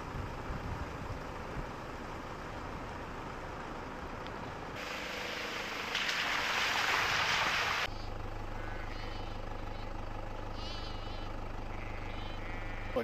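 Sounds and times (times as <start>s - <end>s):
vehicle driving: 0.0s - 13.0s
water splashing: 4.8s - 7.9s.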